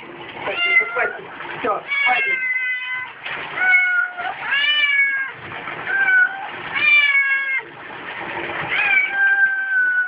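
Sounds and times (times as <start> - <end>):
cat yowling: 1.9 - 7.7, 8.7 - 10.0.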